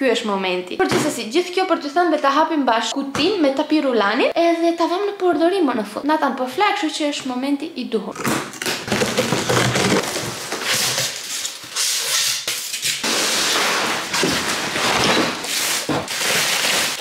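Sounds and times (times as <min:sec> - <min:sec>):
plastic wrapping rustling: 0:08.2 - 0:17.0
scissors slitting packing tape: 0:08.2 - 0:17.0
cardboard flaps scraping: 0:08.6 - 0:12.4, 0:13.0 - 0:17.0.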